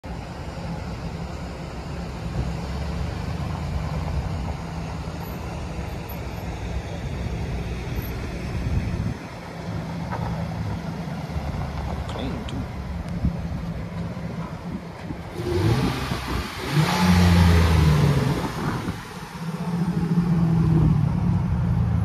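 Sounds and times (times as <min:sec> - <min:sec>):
truck engine droning: 0:00.0 - 0:22.0.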